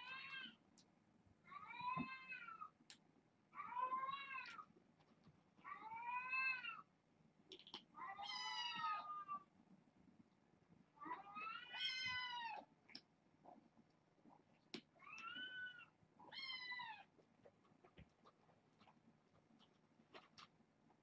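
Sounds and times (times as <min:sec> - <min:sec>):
kitten meowing: 0:11.2 - 0:12.6.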